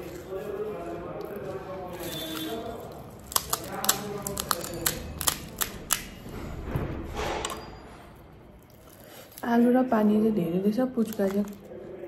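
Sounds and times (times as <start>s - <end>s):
fried shells cracking: 0.0s - 6.3s, 8.5s - 9.6s, 11.0s - 12.0s.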